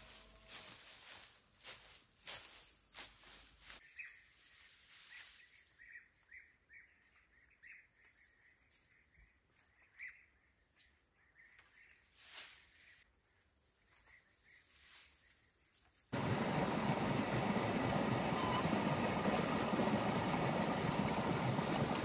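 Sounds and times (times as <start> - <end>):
loud steady rushing noise: 16.2 - 22.0
faint bird chirps: 17.3 - 19.8.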